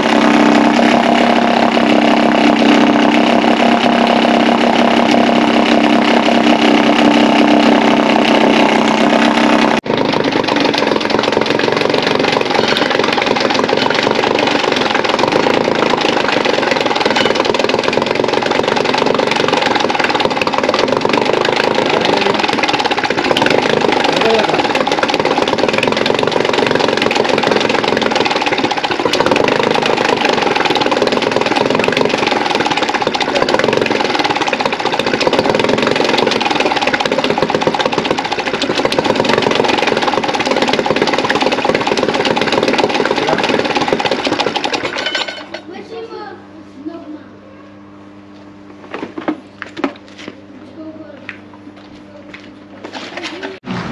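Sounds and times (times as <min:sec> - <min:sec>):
outboard engine idling: 0:00.0 - 0:45.2.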